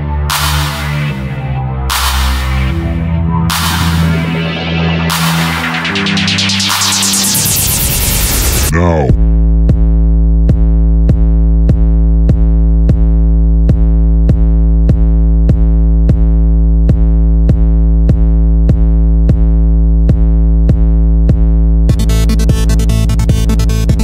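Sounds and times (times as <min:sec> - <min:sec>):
electronic music with synthesizer: 0:00.0 - 0:09.4, 0:21.9 - 0:24.0.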